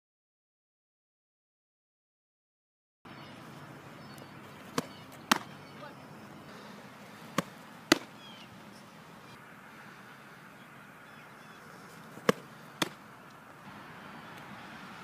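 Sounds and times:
ball popping into glove: 0:04.7 - 0:05.5, 0:07.3 - 0:08.2, 0:12.2 - 0:13.0
snap of pitch delivery: 0:04.7 - 0:05.5, 0:07.4 - 0:08.2, 0:12.2 - 0:13.0.

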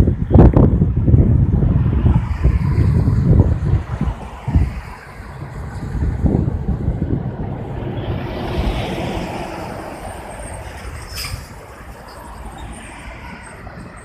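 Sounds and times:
truck tyres hissing on wet road: 0:02.2 - 0:12.2.

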